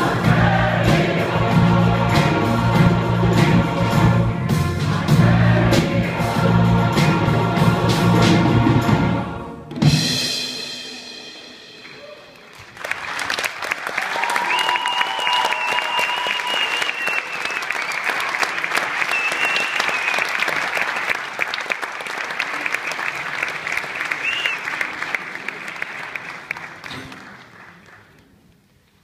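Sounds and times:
audience clapping: 11.8 - 29.0
high whistles: 14.5 - 18.1, 19.0 - 20.4, 24.2 - 24.7.

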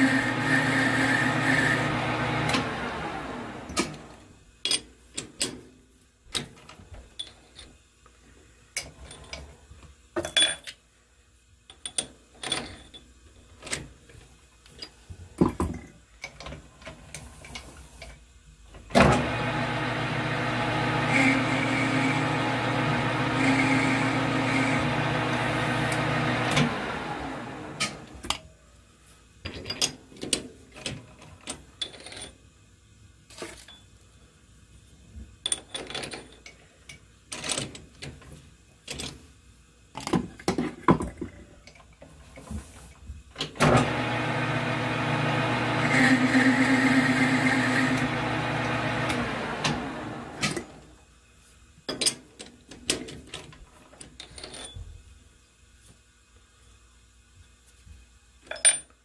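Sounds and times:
metal lathe running: 0.0 - 4.1, 19.1 - 28.2, 43.7 - 50.8.

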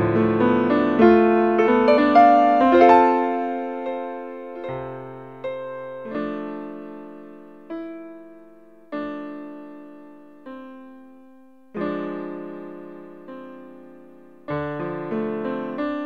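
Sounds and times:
slow solo piano: 0.0 - 16.0.

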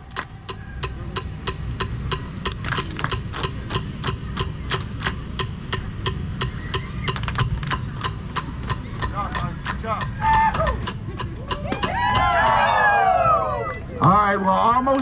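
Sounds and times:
group clapping and slapping: 2.5 - 5.2, 7.1 - 8.2.

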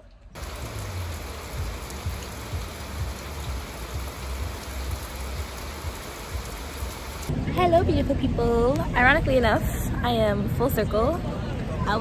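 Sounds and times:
heavy rain pouring: 0.4 - 7.3.

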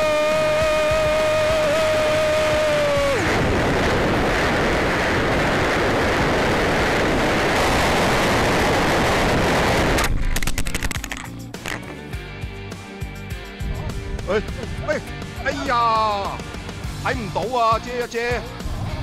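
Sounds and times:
wind buffeting microphone: 2.0 - 10.2.

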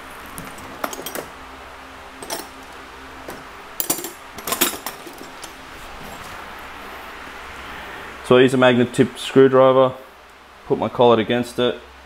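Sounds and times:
metal tools clattering on workbench: 0.4 - 1.4, 2.2 - 5.6.

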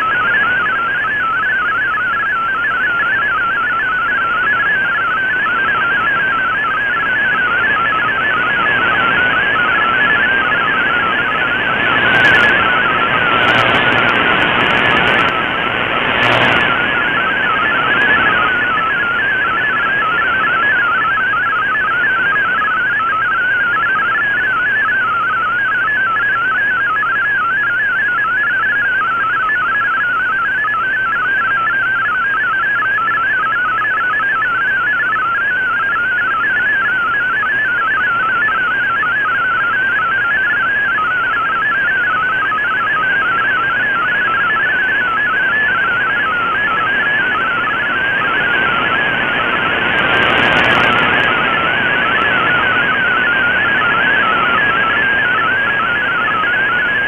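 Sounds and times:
warbling digital signal tones: 0.0 - 22.2
static hiss: 13.0 - 16.9.

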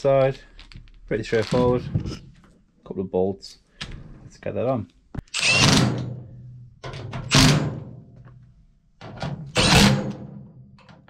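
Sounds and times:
impact driver bursts: 5.3 - 6.2, 7.2 - 7.9, 9.5 - 10.3.

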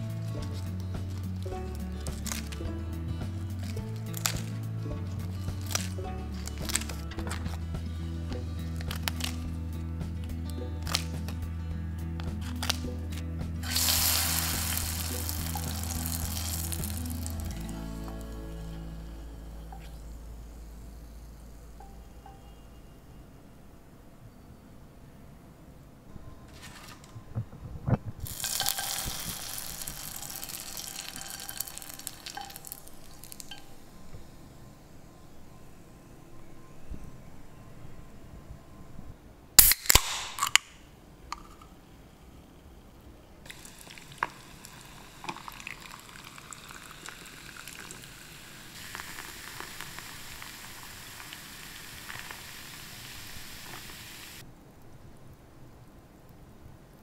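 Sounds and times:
food deep-frying in hot oil: 13.6 - 17.7, 28.2 - 33.9, 43.5 - 54.4
soda fizzing: 13.6 - 18.4, 28.2 - 33.9, 43.5 - 54.4
cola pouring over ice: 13.6 - 18.8, 28.2 - 33.8, 43.5 - 54.4.

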